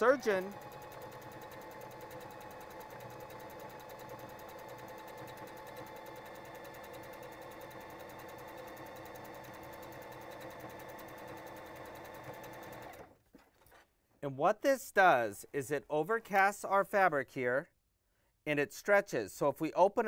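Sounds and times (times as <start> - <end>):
sewing machine running: 0.0 - 13.2.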